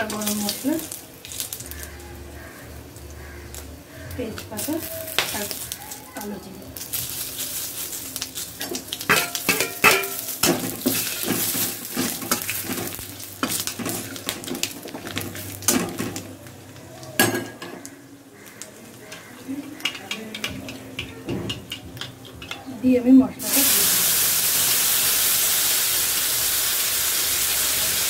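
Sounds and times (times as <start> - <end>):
spices sizzling in hot oil: 0.0 - 28.0
metal spatula scraping pan: 8.6 - 16.2.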